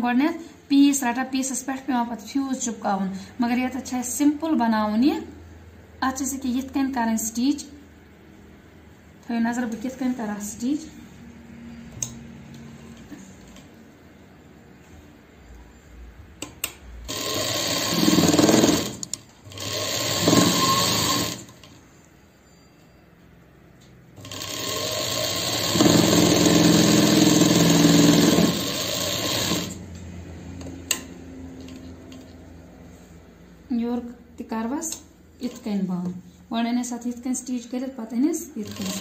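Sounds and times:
sewing machine stitching: 17.1s - 21.7s, 24.2s - 29.8s, 38.6s - 39.0s.

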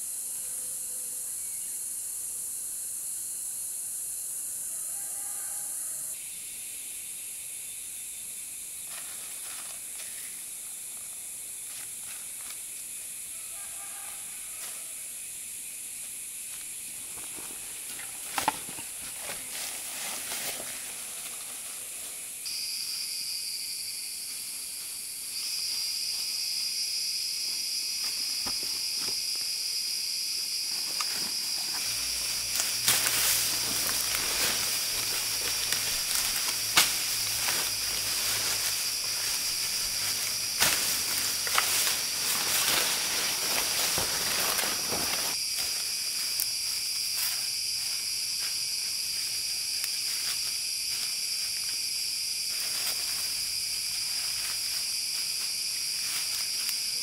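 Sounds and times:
insects droning: 0.0s - 57.0s
shrill insect: 0.0s - 57.0s
rustling with twigs snapping: 16.5s - 22.1s, 30.8s - 47.5s.

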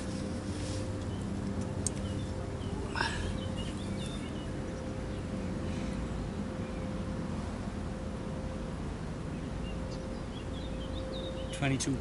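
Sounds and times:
small birds chirping: 0.0s - 6.9s, 9.3s - 12.0s.

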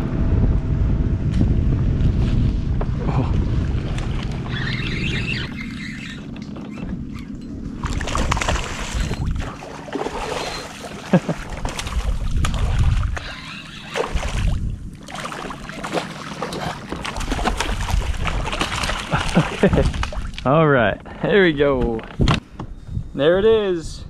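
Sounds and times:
wind gusts on microphone: 0.0s - 9.6s, 11.6s - 15.0s, 16.6s - 24.0s
fish splashing in water: 7.2s - 20.4s.

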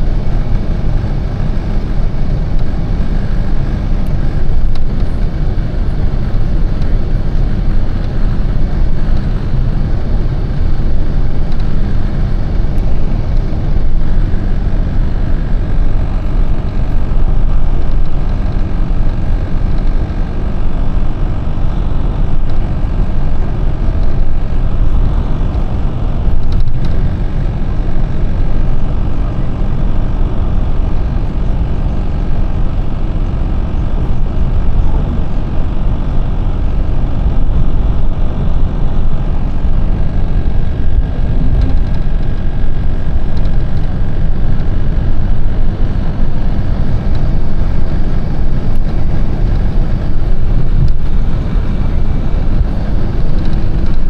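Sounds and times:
bus engine and road rumble: 0.0s - 54.0s.

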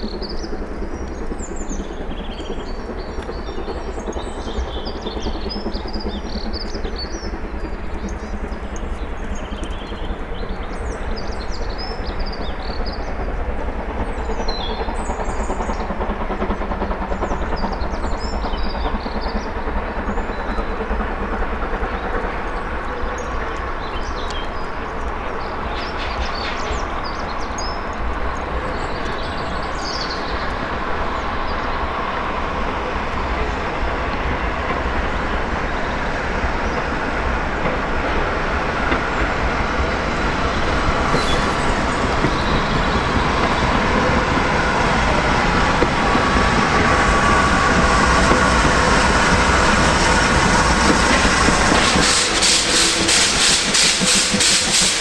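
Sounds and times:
steam locomotive rumbling: 0.0s - 55.0s
birds chirping: 38.6s - 55.0s.

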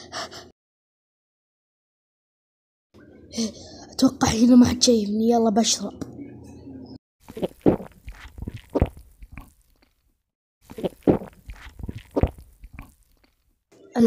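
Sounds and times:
person gulping water: 7.2s - 10.0s, 10.6s - 13.5s.

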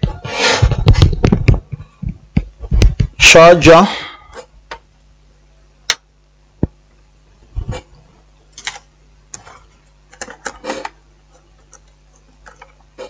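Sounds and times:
plastic keyboard clattering: 9.4s - 12.8s.

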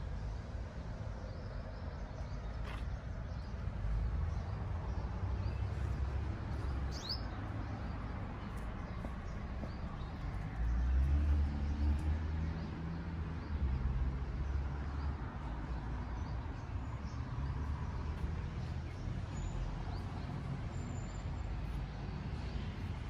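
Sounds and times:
bird chirp: 1.2s - 11.9s.

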